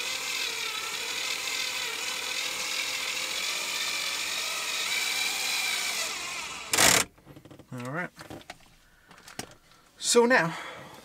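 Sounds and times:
cordless screwdriver whining: 0.0s - 7.1s.

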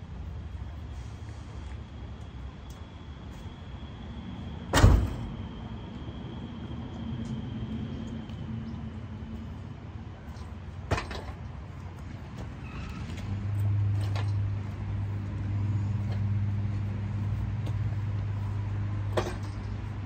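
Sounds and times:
low hum: 0.0s - 20.0s
metal clank: 19.1s - 19.8s.

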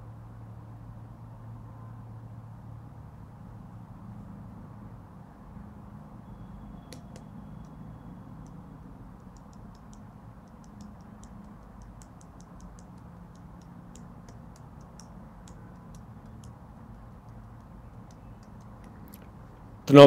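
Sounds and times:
low steady hum: 0.0s - 20.0s.

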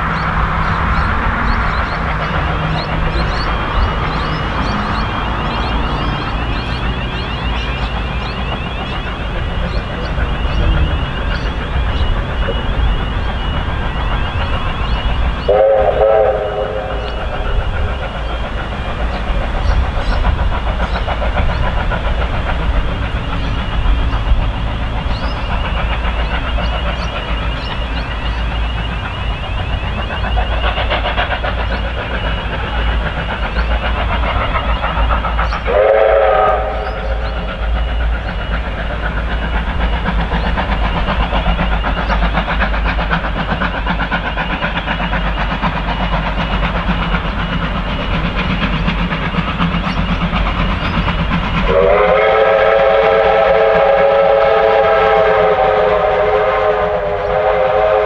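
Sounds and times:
steam locomotive chuffing: 0.0s - 58.0s
steam whistle blasts: 11.9s - 17.8s, 35.6s - 37.9s, 51.7s - 58.0s.

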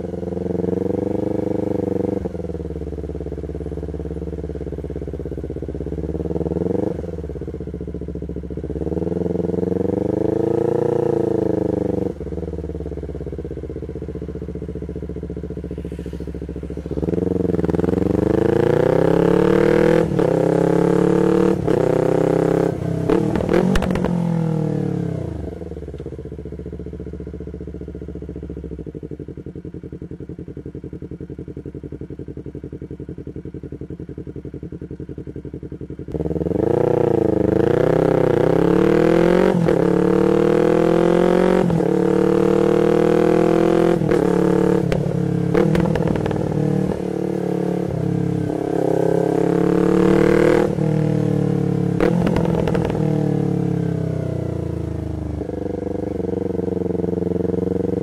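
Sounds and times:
motorcycle engine idling: 0.0s - 58.0s
motorcycle engine revving: 0.0s - 58.0s.

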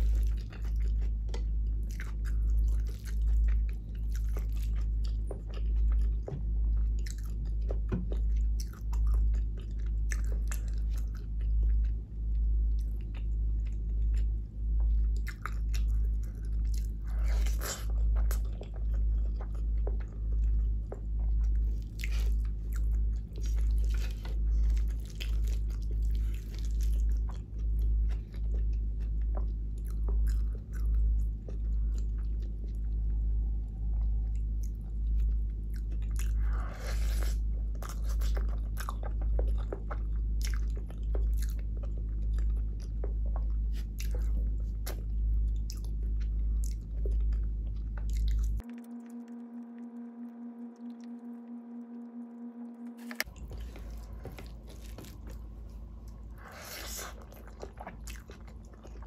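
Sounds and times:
close chewing of rice: 0.0s - 49.5s, 53.0s - 59.0s.

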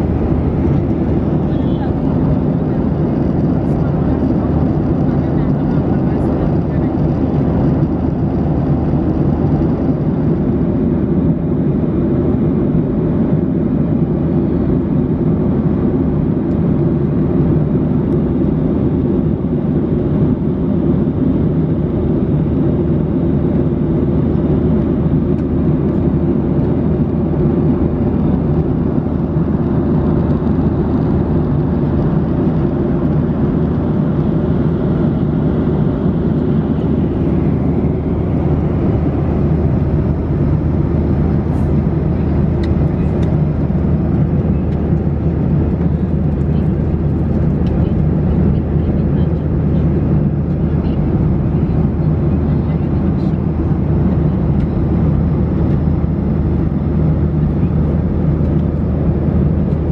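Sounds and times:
airflow rushing: 0.0s - 6.1s
airplane cabin noise at cruise: 0.0s - 59.9s
jet engines droning: 0.0s - 59.9s.

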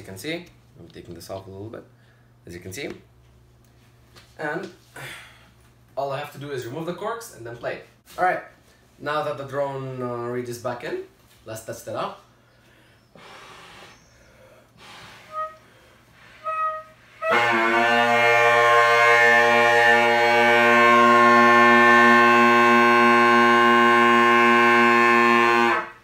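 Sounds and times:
bagpipe drones: 15.2s - 26.0s.

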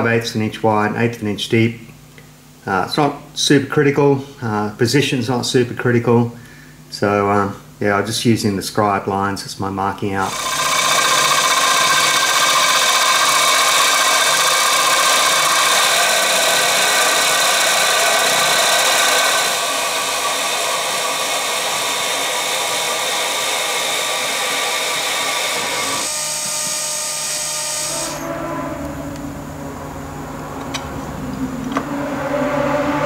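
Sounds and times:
low machine hum: 0.0s - 33.0s
high-pitched milling cutting noise: 10.2s - 30.6s.

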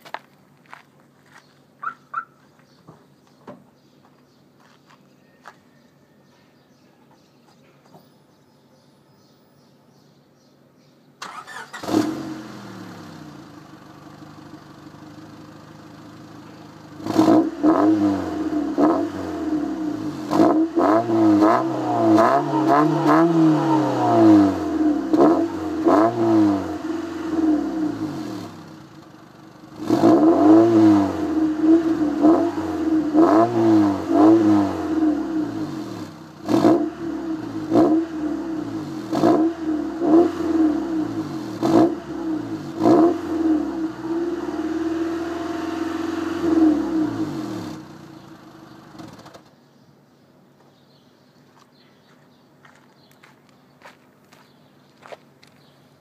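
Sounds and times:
car engine revving: 11.2s - 49.4s.

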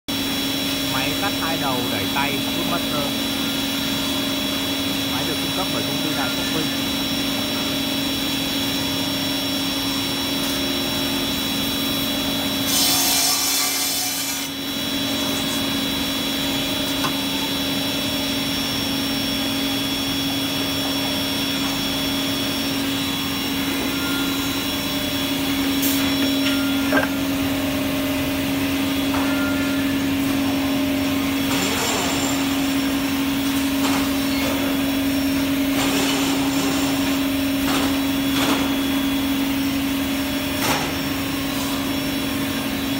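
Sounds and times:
saw cutting bursts: 12.6s - 14.6s.

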